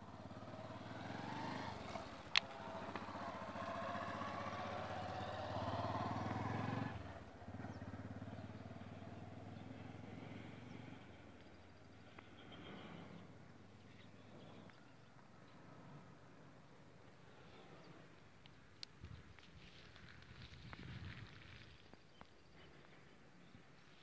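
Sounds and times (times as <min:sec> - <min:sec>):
vehicle engine running: 0:00.0 - 0:14.8.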